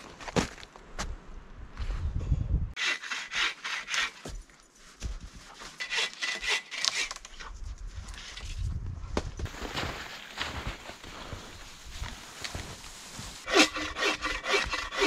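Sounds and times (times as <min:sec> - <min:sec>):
hand saw cutting log: 0:02.8 - 0:04.4, 0:05.6 - 0:07.2, 0:13.4 - 0:15.0.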